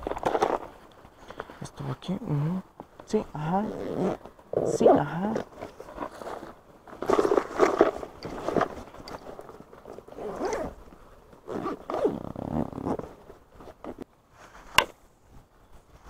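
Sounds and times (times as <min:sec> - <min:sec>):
zipper rasping: 0:03.6 - 0:08.7, 0:10.1 - 0:10.8, 0:11.5 - 0:14.0
fabric rustling: 0:03.6 - 0:14.8.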